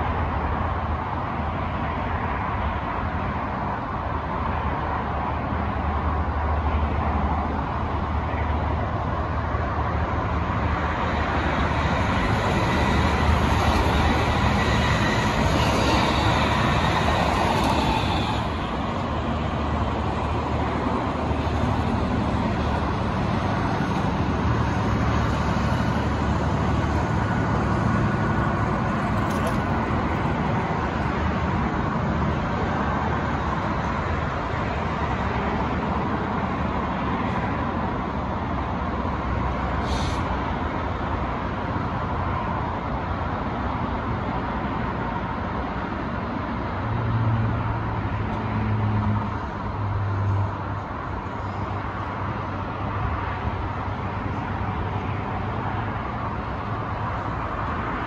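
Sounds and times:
train rail rumble: 8.6s - 32.4s.

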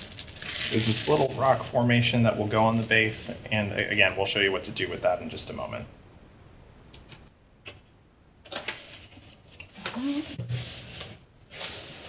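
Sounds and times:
polystyrene foam rubbing and scraping: 0.0s - 2.0s, 9.9s - 12.0s.

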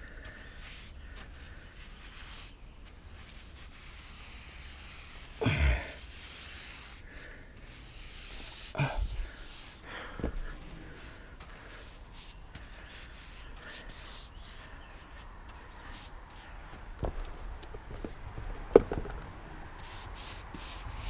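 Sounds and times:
paintbrush rubbing on wood: 0.4s - 5.4s, 6.0s - 16.8s, 19.8s - 21.0s
dull thumps: 10.1s - 10.6s, 17.0s - 19.3s.

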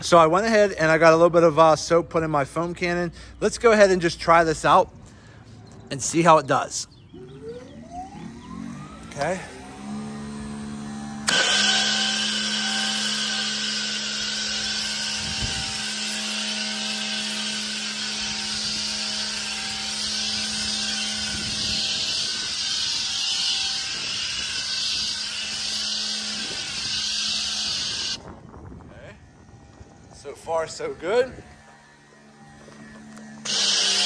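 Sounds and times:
electric motor and pump hum: 7.1s - 34.0s
pressure washer spray hissing: 11.3s - 28.2s, 33.5s - 34.0s.

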